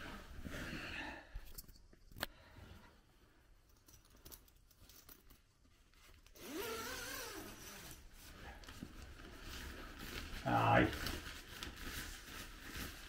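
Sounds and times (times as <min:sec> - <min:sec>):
fabric handling: 0:02.4 - 0:13.0
tent zip being pulled open: 0:06.4 - 0:08.2.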